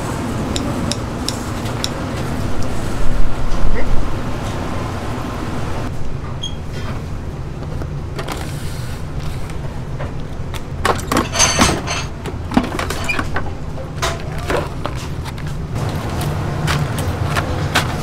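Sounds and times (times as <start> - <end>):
kitchenware clinking and clattering: 10.8 - 13.4.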